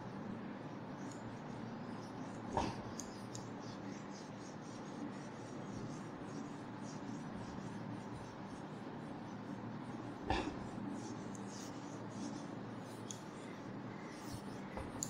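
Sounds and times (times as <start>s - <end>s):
low room hum: 0.0s - 15.0s
duster wiping whiteboard: 1.5s - 15.0s.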